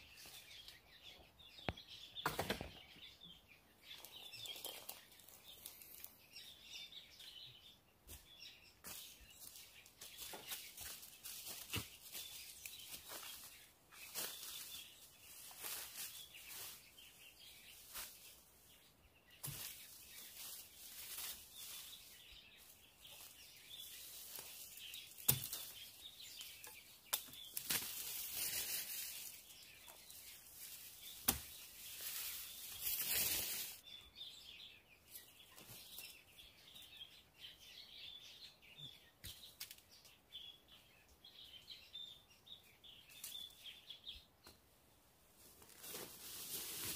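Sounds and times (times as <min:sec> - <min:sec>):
rustling: 0:09.4 - 0:18.4, 0:19.4 - 0:33.8, 0:45.4 - 0:46.9.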